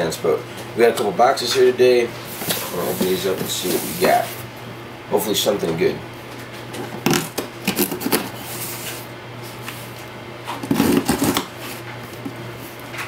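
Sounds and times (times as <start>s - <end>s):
cardboard and tape rustling: 7.1s - 9.0s, 10.5s - 12.4s.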